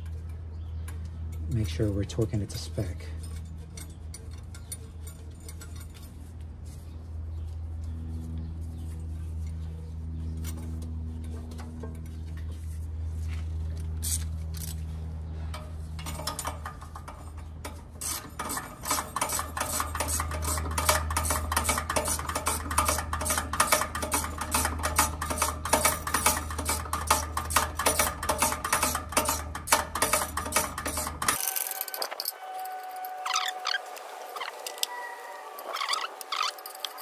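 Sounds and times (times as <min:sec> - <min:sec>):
steady low hum: 0:00.0 - 0:37.0
ratchet clicking: 0:18.0 - 0:32.4, 0:35.7 - 0:37.0.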